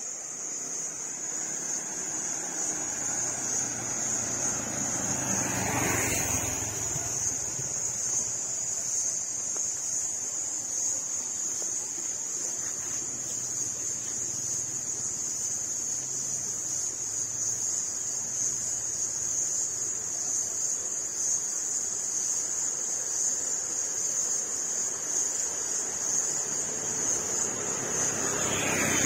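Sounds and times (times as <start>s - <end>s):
insects droning: 0.0s - 29.0s
motorbike engine approaching: 0.7s - 9.0s, 26.4s - 29.0s.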